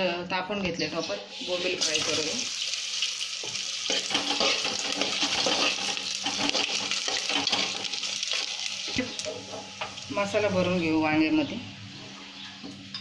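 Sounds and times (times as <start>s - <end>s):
fish sizzling in hot oil: 1.3s - 10.1s
steel tongs stirring: 3.9s - 8.6s.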